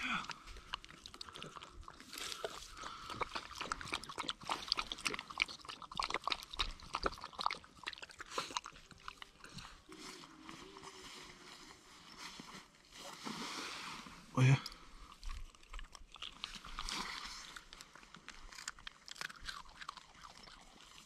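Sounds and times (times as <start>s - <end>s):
dog chewing crunchy food: 0.2s - 10.6s, 14.7s - 21.0s.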